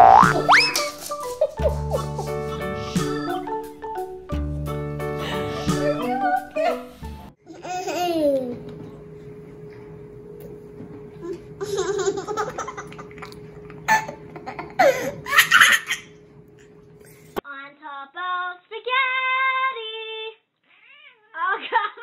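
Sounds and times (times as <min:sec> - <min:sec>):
girl singing: 0:00.0 - 0:01.0, 0:02.5 - 0:03.8, 0:17.5 - 0:20.4
baby laughing and squealing: 0:00.3 - 0:01.0.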